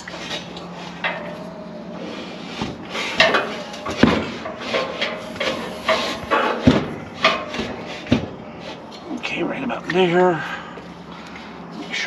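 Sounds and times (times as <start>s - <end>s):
metallic clanks of propane tank: 0.0s - 1.5s, 2.6s - 9.2s.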